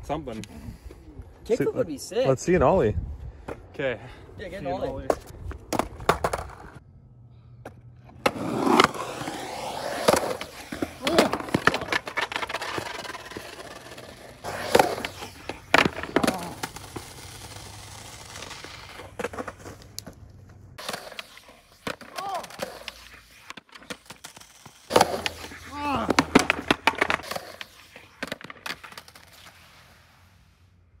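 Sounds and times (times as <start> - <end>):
skateboard wheels rolling on concrete: 0.1 - 31.0
skateboard knocking on ground: 5.0 - 6.8, 10.0 - 17.1, 20.8 - 29.2.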